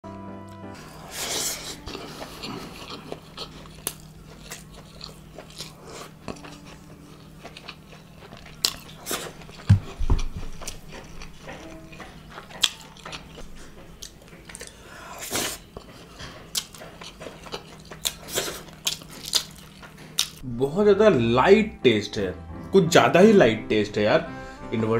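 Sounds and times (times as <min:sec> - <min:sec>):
chewing with wet mouth clicks: 0:01.8 - 0:20.4
low thumps: 0:09.7 - 0:10.7.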